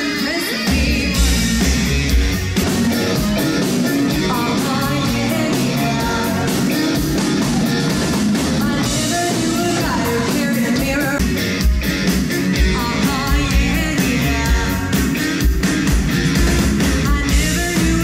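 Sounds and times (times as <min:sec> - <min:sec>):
woman singing: 0:00.0 - 0:01.8, 0:03.0 - 0:07.8, 0:08.5 - 0:11.3, 0:12.6 - 0:15.1, 0:16.9 - 0:18.0
distorted drums: 0:00.0 - 0:18.0
electric guitar: 0:00.0 - 0:18.0
keyboards: 0:00.0 - 0:18.0.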